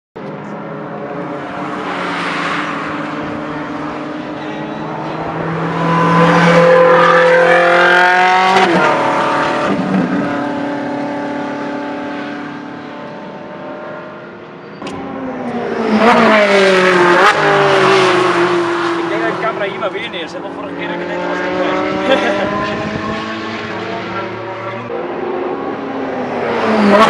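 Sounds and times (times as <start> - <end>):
race car engine at high revs: 0.2 - 27.0.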